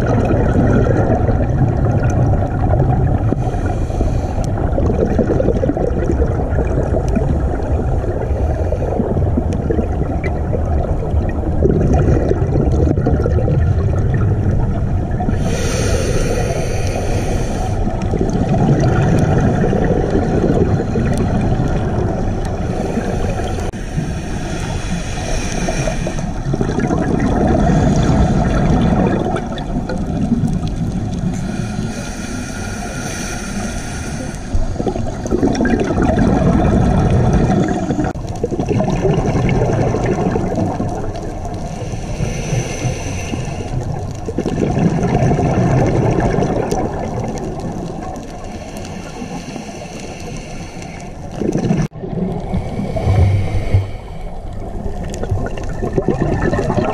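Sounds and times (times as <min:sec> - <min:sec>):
exhaled bubbles rushing underwater: 0:00.0 - 0:56.9
regulator inhalation hiss: 0:03.4 - 0:04.5, 0:15.4 - 0:17.9, 0:22.7 - 0:26.4, 0:31.4 - 0:34.8, 0:41.6 - 0:43.8, 0:48.4 - 0:51.3, 0:52.5 - 0:54.6.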